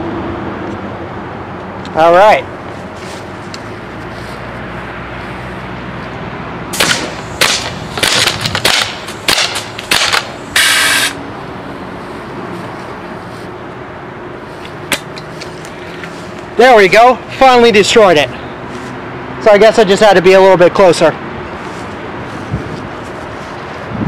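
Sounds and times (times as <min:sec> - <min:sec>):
paintball gun firing sharp pops: 0:06.8 - 0:10.8
air hiss: 0:10.5 - 0:11.2.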